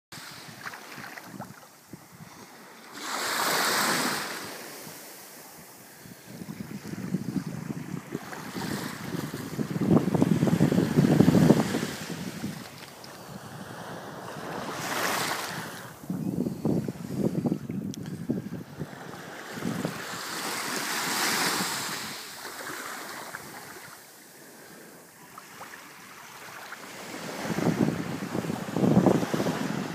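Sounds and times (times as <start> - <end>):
wind buffeting microphone: 0.2 - 2.5, 5.6 - 22.2, 26.9 - 29.9
small waves lapping on beach: 0.2 - 29.9.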